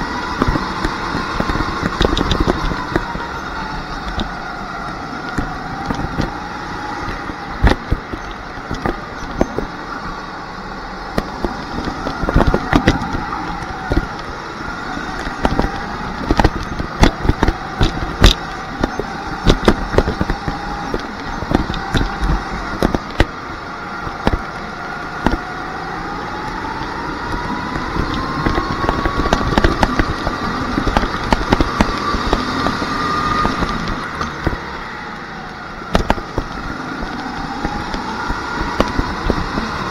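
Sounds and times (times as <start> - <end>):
sharp knocks and crackles: 0.0 - 10.2, 11.0 - 39.9
go-kart motor whine: 0.0 - 39.9.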